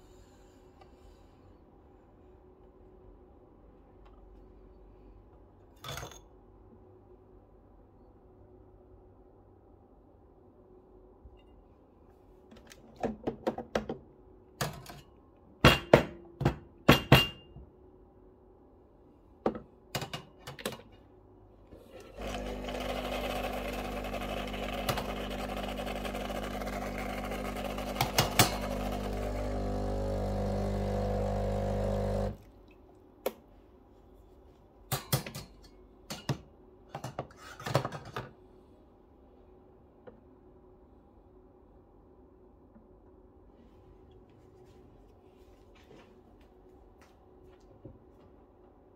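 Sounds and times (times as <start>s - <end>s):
coffee grinder running: 22.0s - 32.4s.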